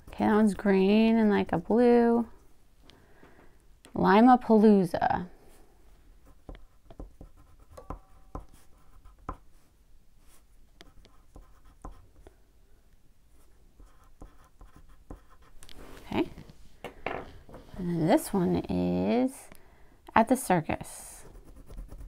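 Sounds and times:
crayon scribbling on paper: 13.8s - 15.5s, 21.2s - 22.0s.

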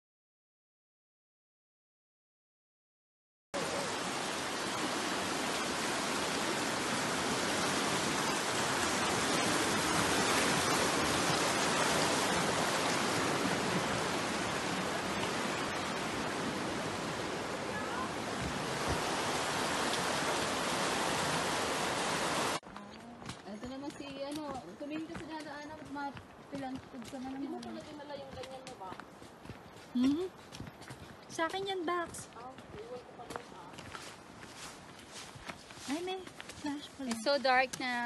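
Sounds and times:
rushing river water: 3.6s - 22.6s.

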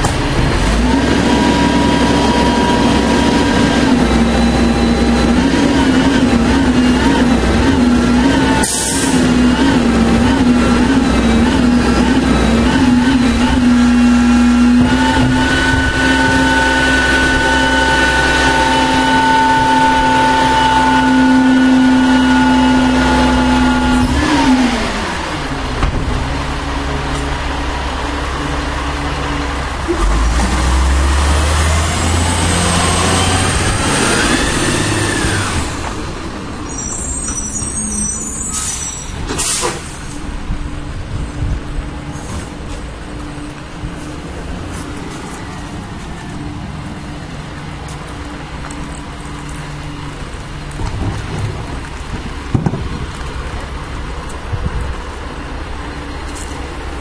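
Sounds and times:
garbage truck diesel engine: 0.0s - 57.0s
rising and falling whine: 0.6s - 25.7s.

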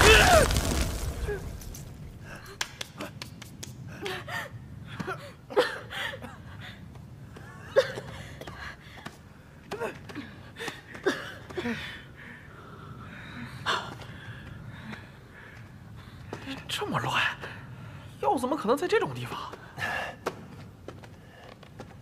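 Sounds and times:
people gasping and straining: 3.8s - 16.7s, 19.5s - 22.0s.

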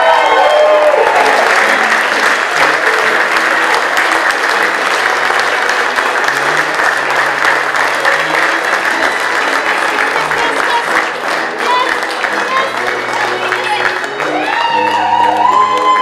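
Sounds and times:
crowd applauding: 0.0s - 16.0s.

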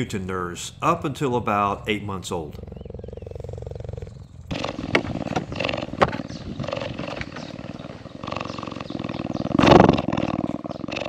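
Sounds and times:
cheetah purring: 2.4s - 11.0s.

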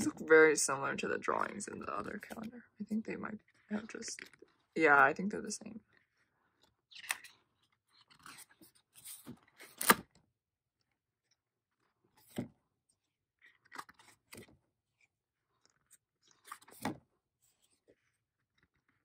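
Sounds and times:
paper calendar pages flipping: 1.3s - 2.6s, 5.9s - 10.2s, 10.8s - 19.0s.

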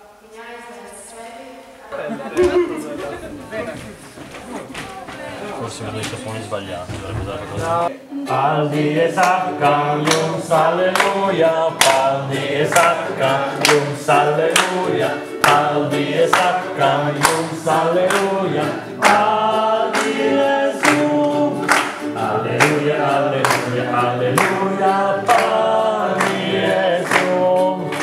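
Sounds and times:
classical guitar: 2.0s - 28.0s
group of people singing: 6.2s - 28.0s
hand-clapping on the beat: 8.8s - 28.0s.

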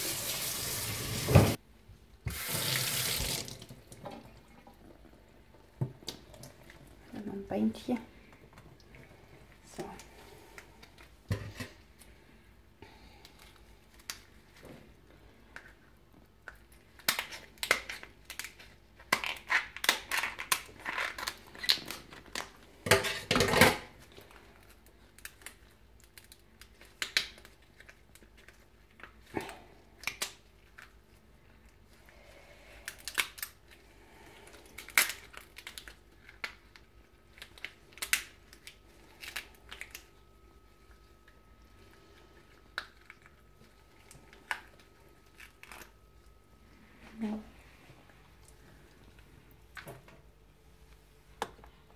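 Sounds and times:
lobster shell cracking: 16.5s - 22.6s, 24.6s - 29.1s, 29.9s - 30.9s, 32.8s - 33.8s, 34.5s - 40.1s, 44.3s - 45.9s.

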